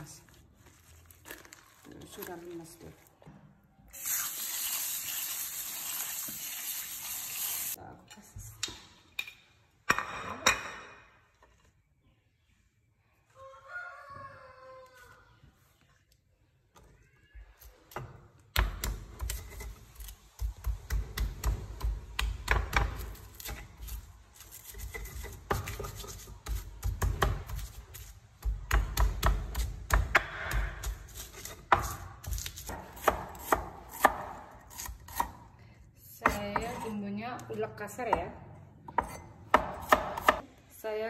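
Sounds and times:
pestle pounding in stone mortar: 24.8 - 35.4, 38.9 - 40.4.

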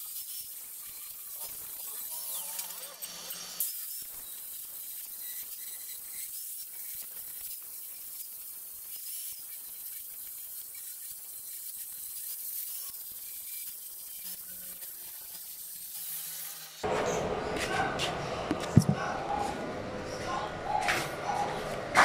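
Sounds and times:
angle grinder grinding steel: 0.0 - 16.9.

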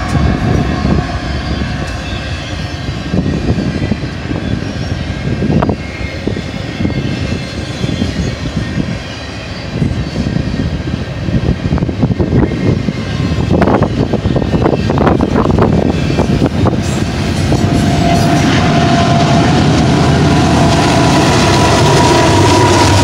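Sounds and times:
train clattering and clanking: 0.0 - 23.0
train wheels rumbling on rail: 0.0 - 23.0.

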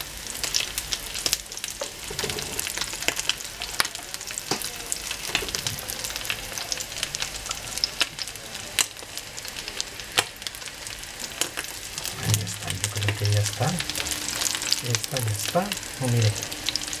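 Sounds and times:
frying in hot oil sizzling: 0.0 - 17.0
oil crackling and popping: 0.0 - 17.0
spatula moving food: 11.2 - 17.0.

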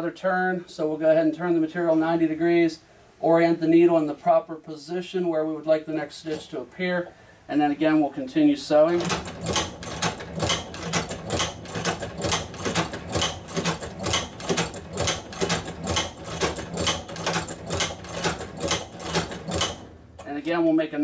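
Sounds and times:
hand-crank sewing machine clicking: 8.8 - 20.4.

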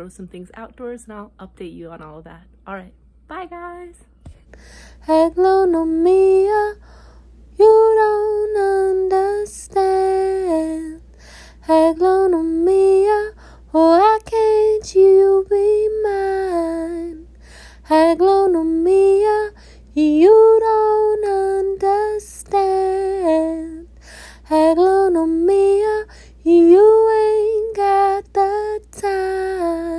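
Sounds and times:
woman singing unaccompanied: 5.0 - 6.8, 7.5 - 11.0, 11.6 - 29.9.

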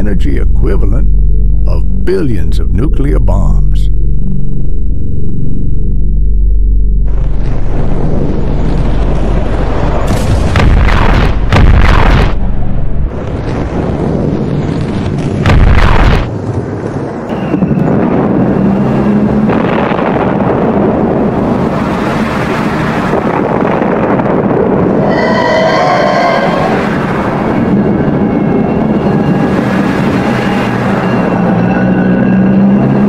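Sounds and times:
continuous rumble: 0.0 - 25.6
explosive blasts: 7.0 - 16.8.

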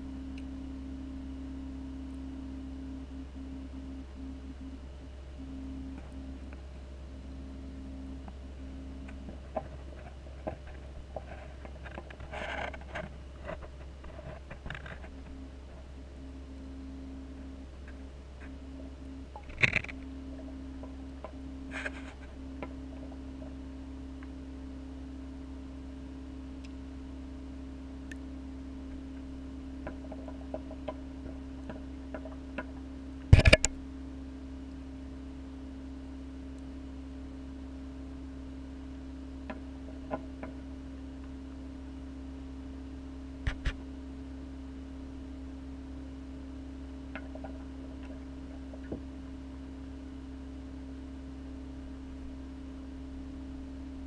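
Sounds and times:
steady low hum: 0.0 - 54.0
faint ticks: 0.3 - 0.5, 9.0 - 15.8, 28.0 - 28.2.

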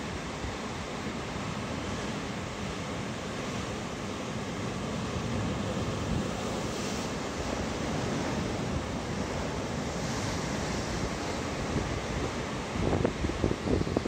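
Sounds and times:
wind on microphone: 10.0 - 14.0.

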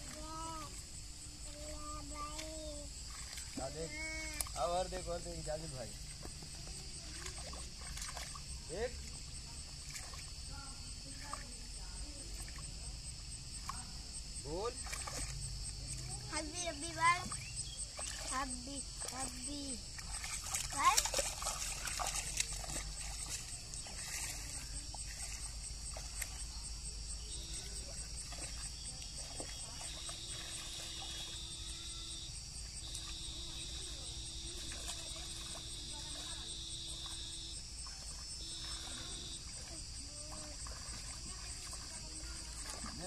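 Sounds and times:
insects chirring shrilly: 12.4 - 43.0
plain steady tone: 22.2 - 43.0.

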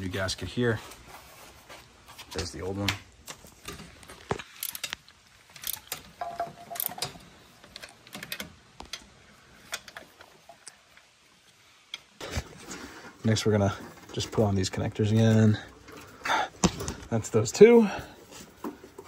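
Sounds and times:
ratchet wrench clicking: 4.6 - 5.0, 5.6 - 6.0.

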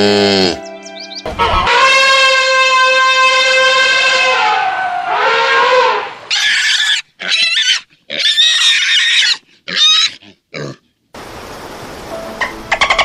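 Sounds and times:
elephant trumpeting: 1.3 - 10.1.

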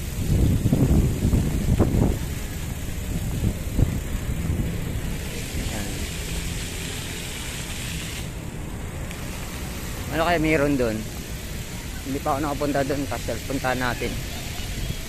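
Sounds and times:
wind rumbling on microphone: 0.0 - 10.4, 13.6 - 15.0
faint voices of passers-by: 2.3 - 8.4, 9.1 - 15.0.

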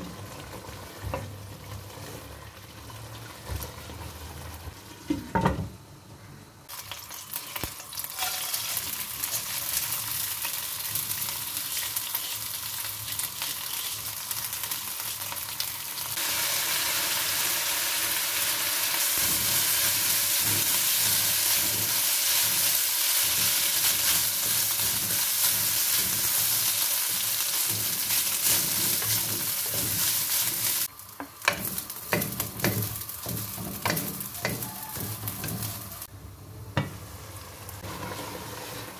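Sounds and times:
rice sizzling in a pan: 6.6 - 36.1, 36.8 - 38.9
wooden spatula scraping: 23.2 - 30.9, 31.6 - 36.1, 37.8 - 38.9.

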